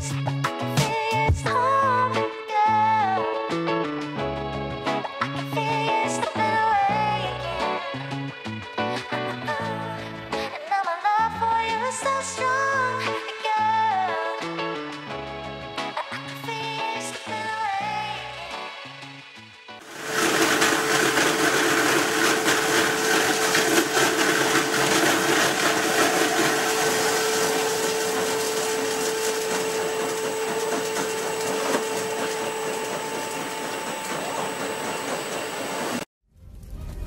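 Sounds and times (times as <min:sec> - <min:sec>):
machine whirring with whine: 0:19.9 - 0:36.1.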